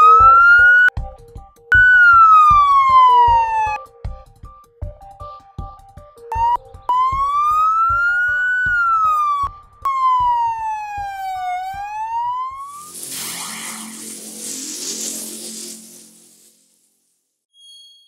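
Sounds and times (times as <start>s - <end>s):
electronic siren wailing: 0.0s - 0.9s, 1.7s - 3.8s, 6.4s - 14.2s
music beat: 6.3s - 9.1s
rushing noise: 12.7s - 16.8s.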